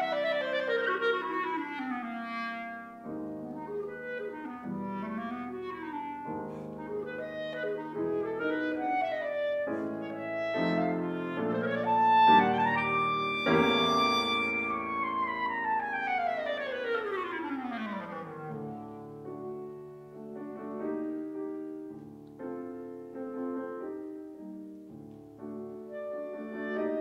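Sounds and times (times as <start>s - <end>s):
clarinet melody: 0.0s - 27.0s
piano chords: 0.0s - 27.0s.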